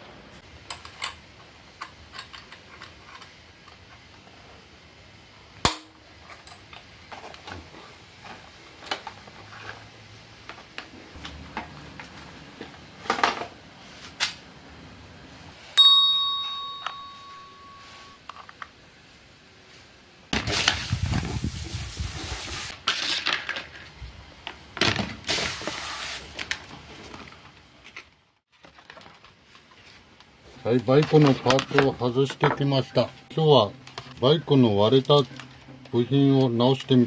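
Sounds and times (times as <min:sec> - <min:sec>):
bright metallic ding: 0:15.8 - 0:18.2
hose spraying water on metal: 0:20.4 - 0:22.8, 0:25.2 - 0:26.4.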